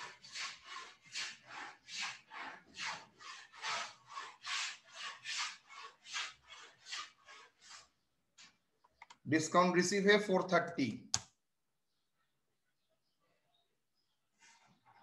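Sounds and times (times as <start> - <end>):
rhythmic rubbing strokes: 0.0 - 7.9.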